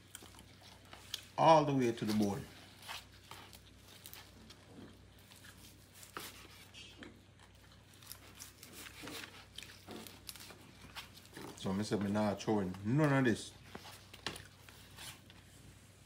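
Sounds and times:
low steady hum: 0:00.0 - 0:16.0.

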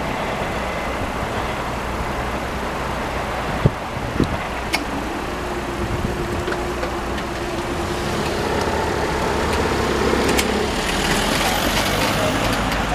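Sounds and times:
road traffic noise: 0:00.0 - 0:12.9
barrier machines humming: 0:04.4 - 0:12.9.

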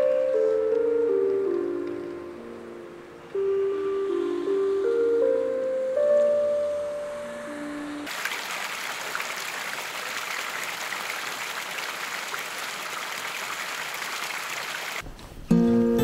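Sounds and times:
flowing water rushing: 0:08.1 - 0:15.0.

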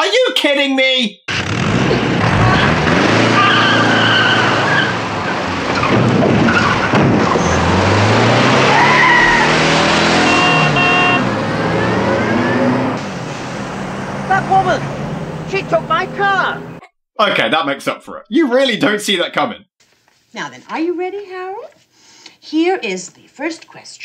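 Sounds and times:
car engines revving: 0:01.3 - 0:16.8
tyres squealing: 0:01.4 - 0:13.0.

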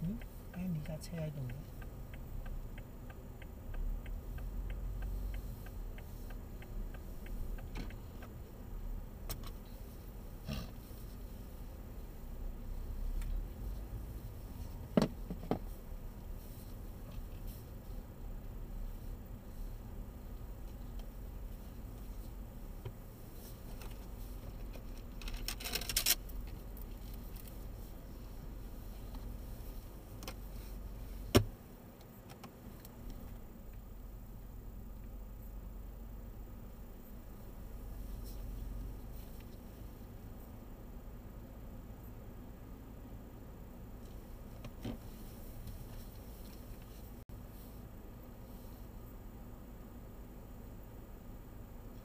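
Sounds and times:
turn signal ticking: 0:00.0 - 0:39.6
engine and road rumble: 0:00.0 - 0:52.0.

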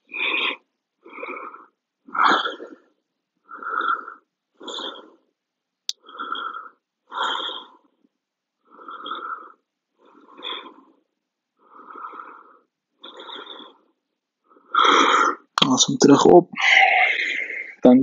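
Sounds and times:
loud hissing breaths: 0:06.0 - 0:07.9.

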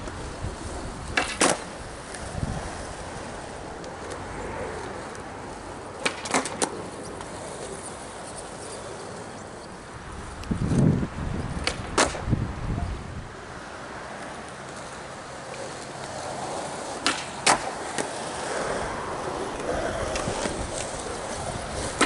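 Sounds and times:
skateboard wheels rolling: 0:00.0 - 0:22.0
skateboard clacking on court: 0:01.1 - 0:02.3, 0:05.9 - 0:09.0, 0:11.6 - 0:12.3, 0:14.5 - 0:22.0.

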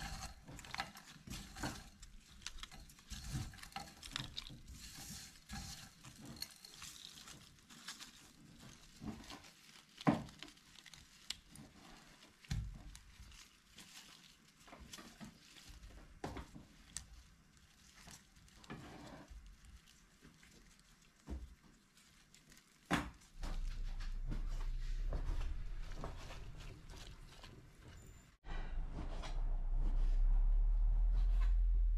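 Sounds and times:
plastic bag crinkling: 0:00.0 - 0:28.0
low steady hum: 0:23.3 - 0:31.9.

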